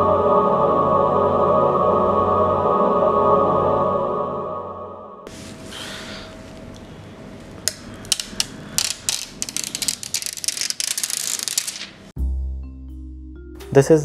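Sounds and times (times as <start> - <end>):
plastic film peeling: 7.5 - 12.1
crackling clicks: 7.6 - 12.1.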